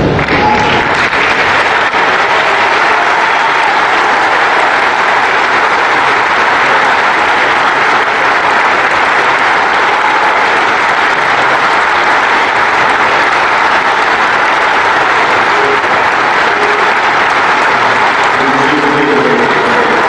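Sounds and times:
arena crowd applauding: 0.0s - 20.0s.

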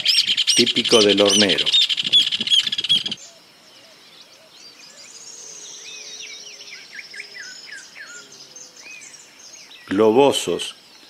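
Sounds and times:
high falling bird trill: 0.0s - 3.9s
rapid bird calls: 0.0s - 10.1s
birds chirping and whistling: 0.0s - 11.0s.

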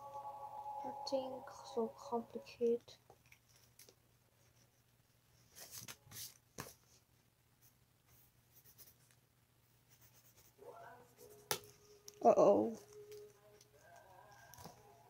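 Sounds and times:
pencil scratching on paper: 9.9s - 11.5s.

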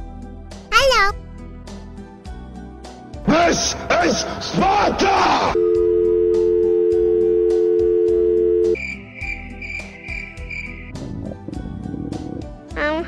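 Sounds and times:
garbled voice: 0.7s - 1.2s
telephone dial tone: 5.6s - 8.8s
cricket chirping sound effect: 8.8s - 10.9s.

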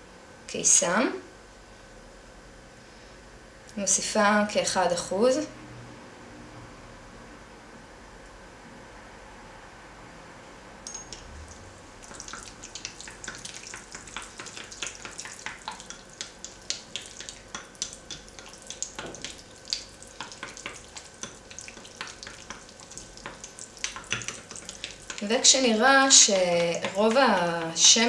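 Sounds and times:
spatula stirring gel in glass bowl: 11.1s - 28.0s.

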